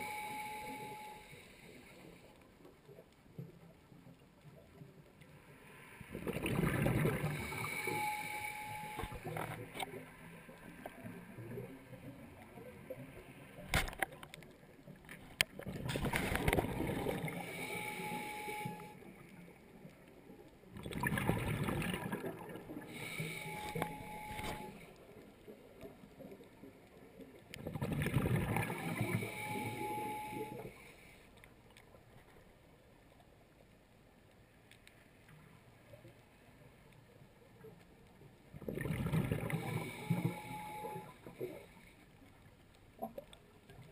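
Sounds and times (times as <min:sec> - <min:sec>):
regulator steady tone: 0:00.0 - 0:03.5, 0:05.2 - 0:13.7, 0:16.1 - 0:26.4, 0:28.2 - 0:31.2, 0:39.0 - 0:42.2
diver exhaling bubbles: 0:06.1 - 0:08.0, 0:20.8 - 0:24.0, 0:38.6 - 0:40.3.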